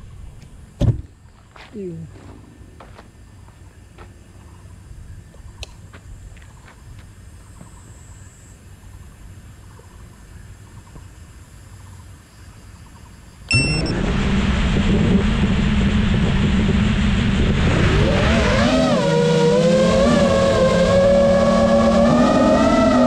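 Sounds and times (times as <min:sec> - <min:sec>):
high chirp: 0:13.5 - 0:14.0
motor whine swooping in pitch: 0:13.5 - 0:23.0.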